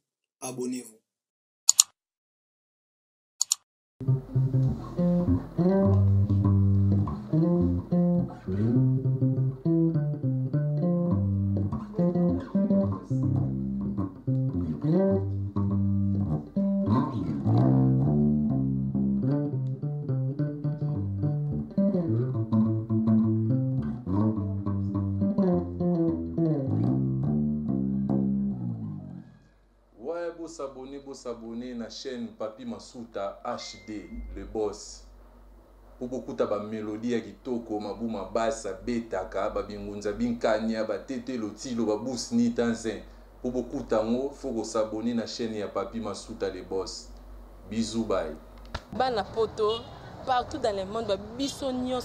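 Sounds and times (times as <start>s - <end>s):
short clicks: 1.7s - 2.0s, 3.4s - 3.7s
electric bass guitar solo: 4.0s - 29.5s.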